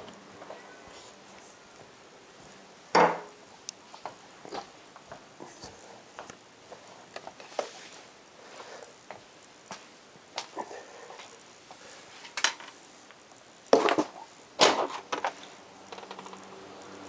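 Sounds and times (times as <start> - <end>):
knocks and clatters: 13.8 - 16.4.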